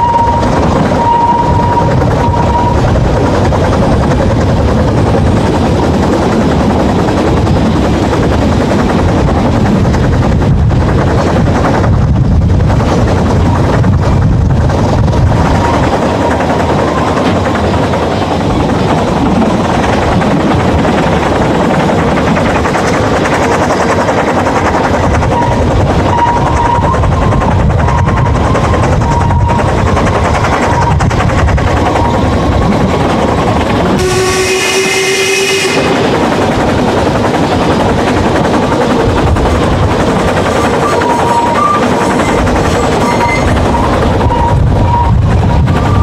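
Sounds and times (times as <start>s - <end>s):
steam whistle: 0.0s - 2.8s, 34.0s - 36.0s
wheels squealing: 0.0s - 2.9s, 25.2s - 31.1s, 40.4s - 46.0s
steam train rumble and clatter: 0.0s - 46.0s.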